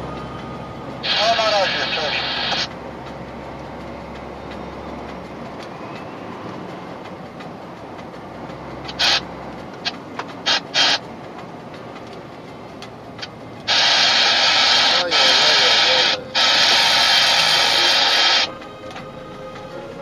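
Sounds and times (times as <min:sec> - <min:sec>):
truck engine and tyres rumbling: 0:00.0 - 0:20.0
loud hissing bursts: 0:13.7 - 0:18.5.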